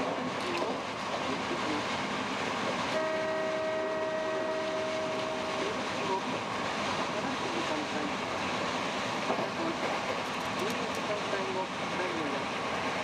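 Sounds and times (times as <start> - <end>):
electric train rumbling on rails: 0.0 - 13.0
train horn chord: 3.0 - 5.6.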